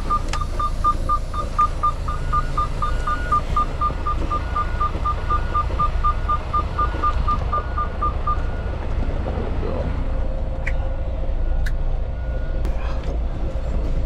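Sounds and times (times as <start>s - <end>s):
truck reverse beeper: 0.0s - 8.9s, 11.3s - 12.7s
truck engine rumble: 0.0s - 14.0s.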